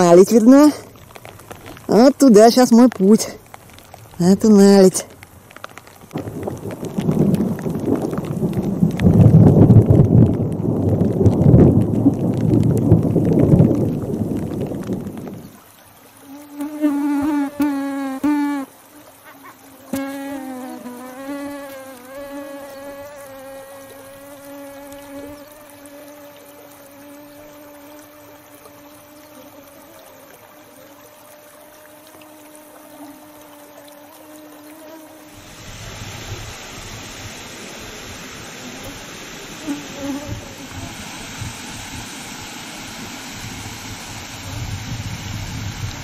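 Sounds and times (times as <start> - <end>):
insect buzzing: 0.0 - 9.1, 13.1 - 46.0
steady hiss: 0.0 - 46.0
wind buffeting microphone: 6.1 - 15.6, 40.0 - 46.0.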